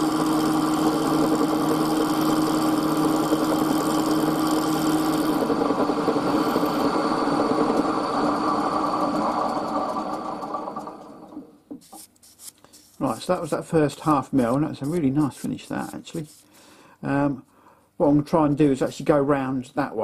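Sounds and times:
milling machine cutting metal: 0.0 - 11.1.

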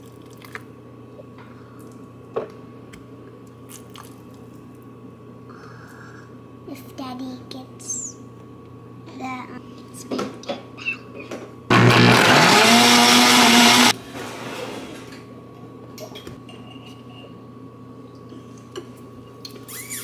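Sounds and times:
blender motor whining: 11.7 - 15.0.

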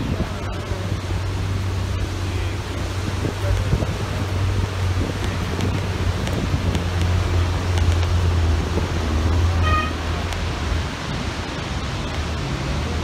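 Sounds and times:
road noise: 0.0 - 13.0
vehicle engine drone: 0.0 - 13.0
short horn toot: 9.6 - 10.0.

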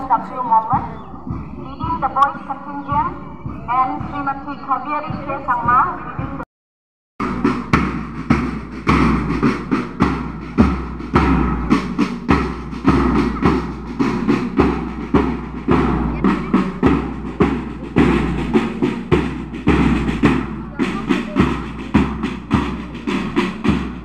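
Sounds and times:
bass drum beats: 0.0 - 6.4, 7.2 - 24.0
marching music: 0.0 - 6.4, 7.2 - 24.0
sharp drum strikes: 7.2 - 24.0.

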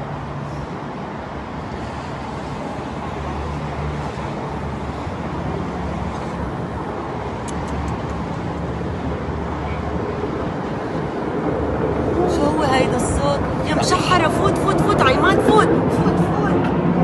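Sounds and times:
traffic-like rumble: 0.0 - 17.0.

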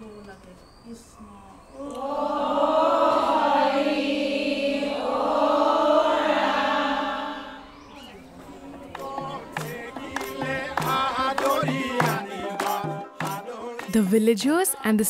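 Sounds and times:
women singing a hymn: 1.8 - 7.8.

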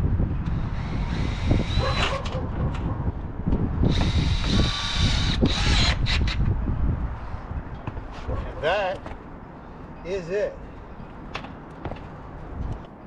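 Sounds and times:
wind buffeting microphone: 0.0 - 8.7
cordless drill driving screws: 0.6 - 2.4, 3.8 - 6.4.

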